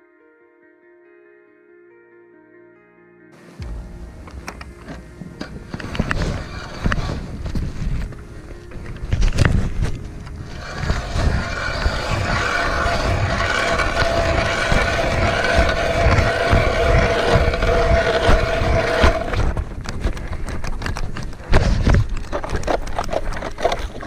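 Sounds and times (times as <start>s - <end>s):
ice auger grinding: 5.7s - 8.0s, 10.2s - 19.6s.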